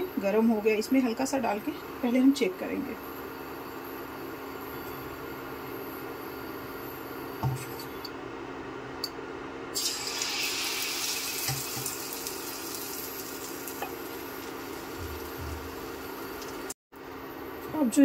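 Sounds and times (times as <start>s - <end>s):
batter sizzling in hot oil: 9.8s - 16.8s.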